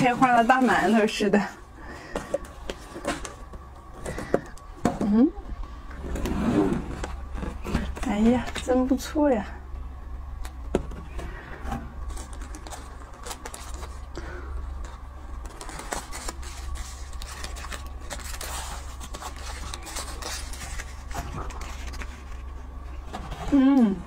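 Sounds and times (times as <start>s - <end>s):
paper wrapper crinkling: 12.0s - 23.0s.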